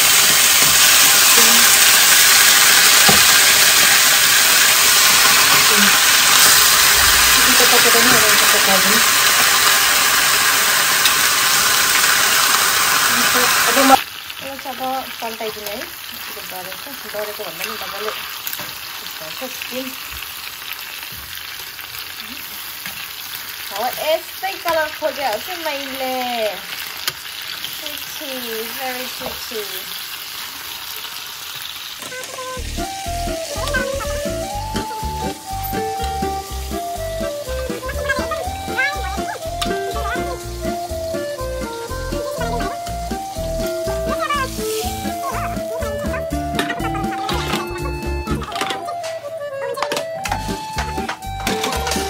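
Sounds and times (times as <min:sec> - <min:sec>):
chicken sizzling in oil: 0:00.0 - 0:49.5
background music with steady beat: 0:32.6 - 0:52.0.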